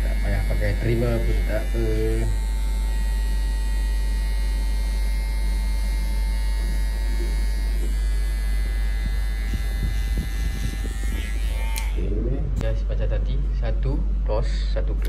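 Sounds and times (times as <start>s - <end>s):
electric hair clippers humming: 0.0s - 12.7s.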